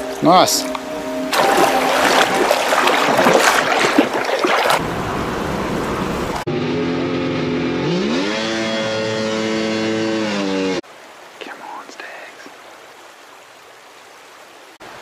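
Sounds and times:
boat engine revving: 0.7s - 10.8s.

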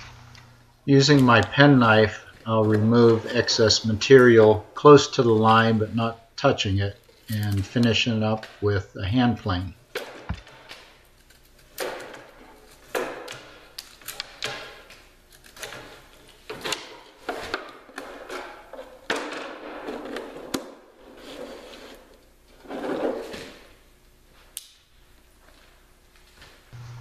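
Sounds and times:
knife scraping wood: 21.0s - 23.4s.

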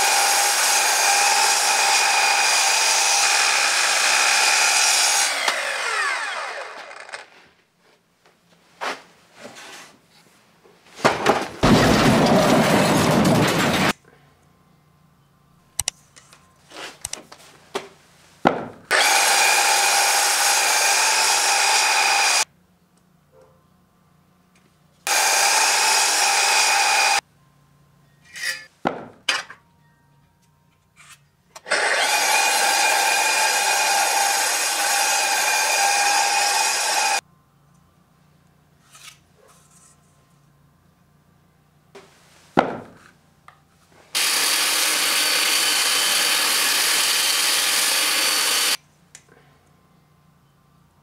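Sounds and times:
mitre saw motor whine: 0.0s - 7.3s, 18.9s - 22.4s, 25.1s - 27.2s, 31.7s - 37.2s, 44.2s - 48.8s
saw cutting through wood: 0.0s - 7.4s, 18.9s - 22.5s, 25.1s - 27.2s, 31.6s - 37.2s, 44.1s - 48.8s.

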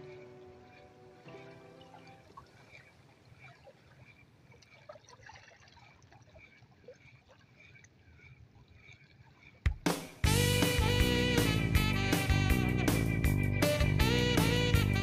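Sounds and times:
water lapping against rocks: 0.0s - 10.2s.

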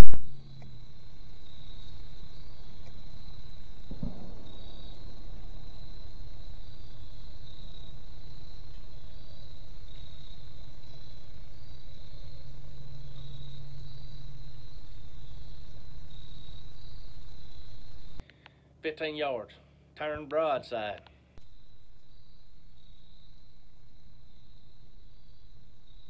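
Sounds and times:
insects trilling: 0.0s - 18.6s, 20.7s - 26.0s
low steady rumble: 0.0s - 18.8s, 21.2s - 26.0s.

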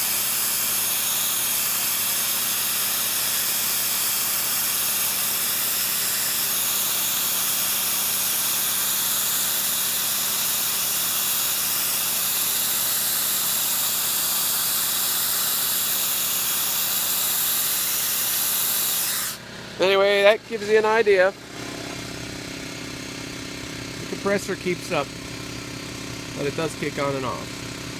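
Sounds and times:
sandblaster hissing: 0.0s - 21.3s.

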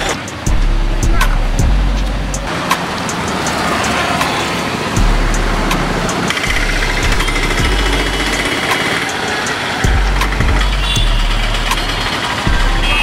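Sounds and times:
road traffic: 0.0s - 13.0s
motor scooter engine passing: 8.3s - 9.9s.

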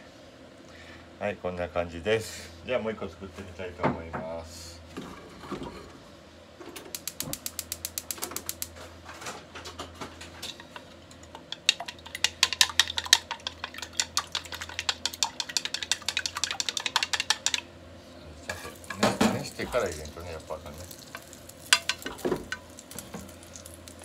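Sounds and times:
chopsticks beating eggs in bowl: 10.4s - 17.7s, 18.5s - 24.0s.

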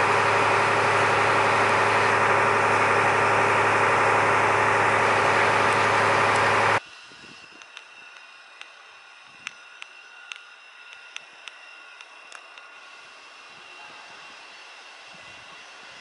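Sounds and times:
ferry engine running: 0.0s - 6.9s
low hum: 0.0s - 16.0s.

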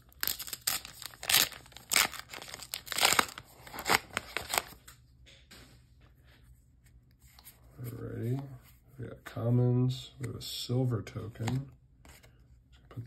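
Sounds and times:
foil wrapper tearing and crinkling: 0.0s - 4.8s.

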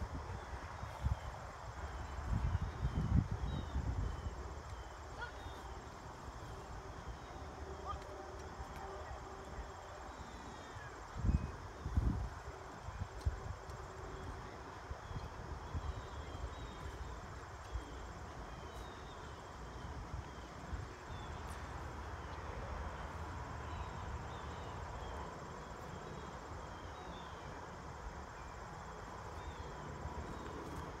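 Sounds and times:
wind on microphone: 0.0s - 4.5s, 11.1s - 14.6s.

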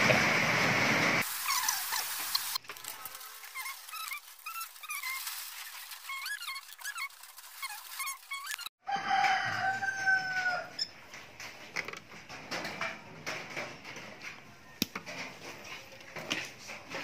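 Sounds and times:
short high squeaky calls: 1.4s - 8.7s
rooster crowing: 8.8s - 10.9s.

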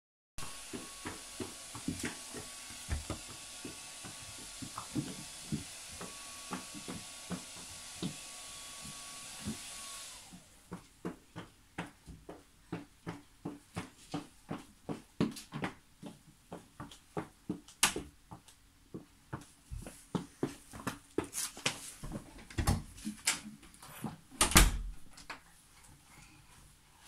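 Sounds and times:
shoes knocking on wooden rack: 0.4s - 8.2s, 10.7s - 21.3s.

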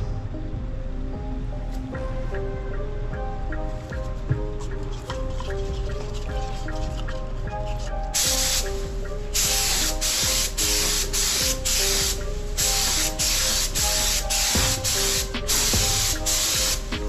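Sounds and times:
spray gun hissing bursts: 8.2s - 17.0s.

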